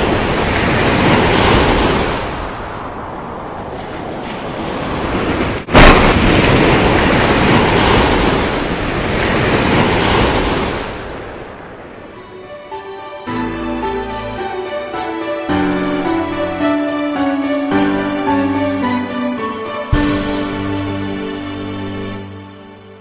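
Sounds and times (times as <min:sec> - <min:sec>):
rush of wind and surf: 0:00.0 - 0:22.2.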